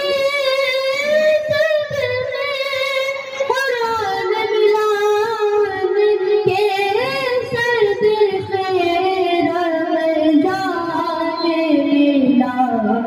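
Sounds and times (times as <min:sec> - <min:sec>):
man singing into a microphone: 0:06.5 - 0:09.0.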